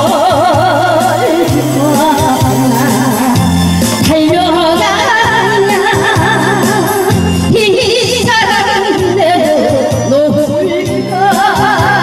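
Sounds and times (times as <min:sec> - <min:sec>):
karaoke backing track: 0:00.0 - 0:12.0
woman singing with vibrato: 0:00.0 - 0:12.0.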